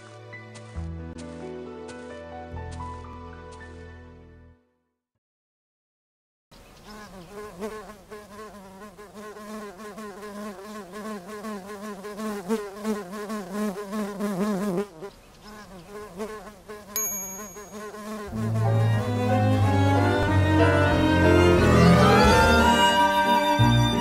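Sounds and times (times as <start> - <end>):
cartoon bee buzzing: 6.9 - 19.0.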